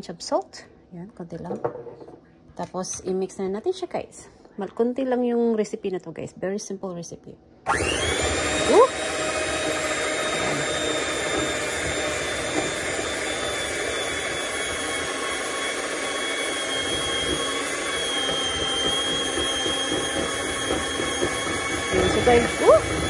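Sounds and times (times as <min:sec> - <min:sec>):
electric hand mixer whining: 0:07.7 - 0:23.0.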